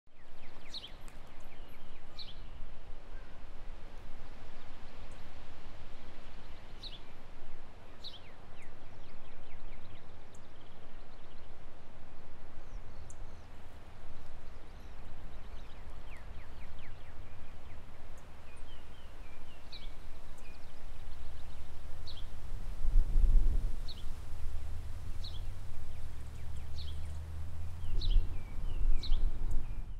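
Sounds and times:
low rumble: 0:22.9 - 0:29.9
high falling bird chirps: 0:23.8 - 0:29.9.

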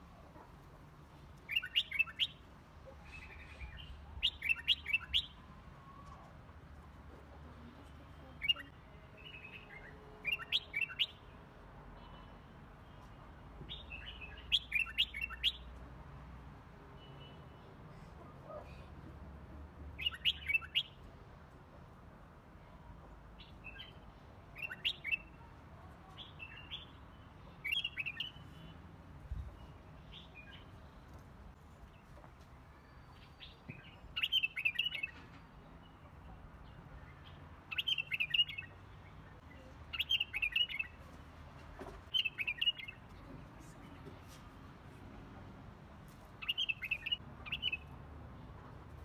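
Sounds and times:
bird chirping: 0:01.5 - 0:02.4, 0:03.0 - 0:05.4, 0:13.7 - 0:15.7, 0:20.0 - 0:21.0, 0:27.6 - 0:28.7, 0:32.8 - 0:36.0, 0:36.6 - 0:41.0, 0:42.1 - 0:43.0, 0:46.4 - 0:47.9.

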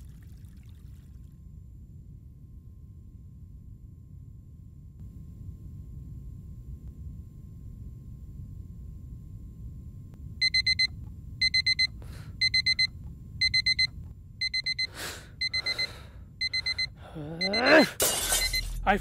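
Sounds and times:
alarm clock beeping: 0:10.4 - 0:19.0.

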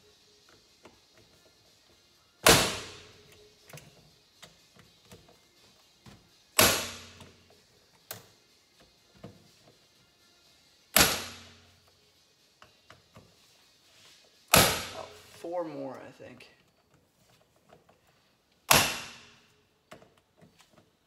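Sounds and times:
hammer striking impact driver: 0:02.4 - 0:03.1, 0:06.6 - 0:07.3, 0:10.9 - 0:11.6, 0:14.5 - 0:15.1, 0:18.7 - 0:19.3.

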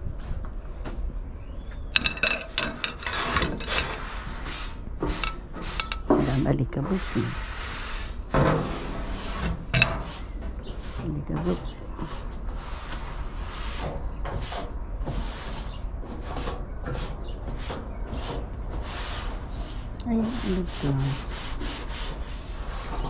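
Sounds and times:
rough scrubbing strokes: 0:02.0 - 0:13.9.

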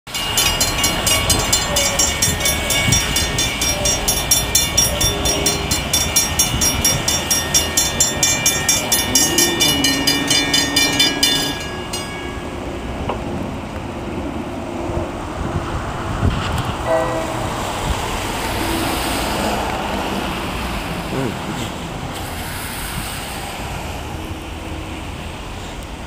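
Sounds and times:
crossing warning bells ringing: 0:00.1 - 0:14.7, 0:16.8 - 0:22.4.

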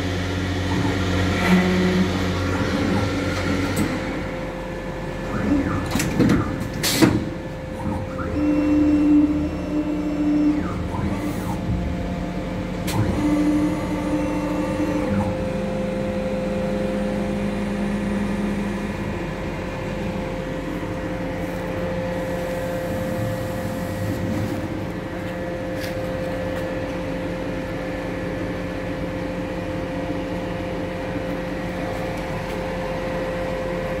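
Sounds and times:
drilling machine motor hum: 0:00.0 - 0:06.6.

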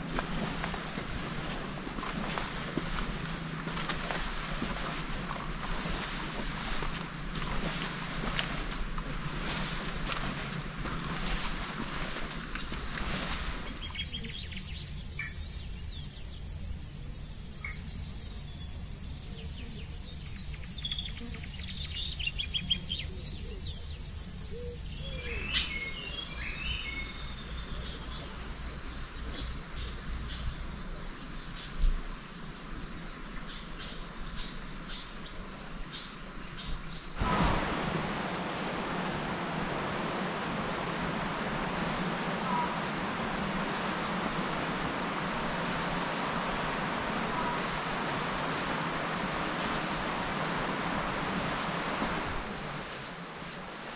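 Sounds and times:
high-pitched insect trill: 0:00.0 - 0:53.9
rushing hiss: 0:37.0 - 0:53.7.

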